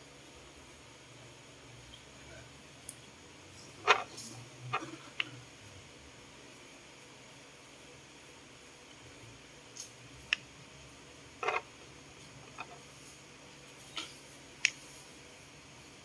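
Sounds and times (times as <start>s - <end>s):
plastic objects clicking on tabletop: 11.4s - 11.6s.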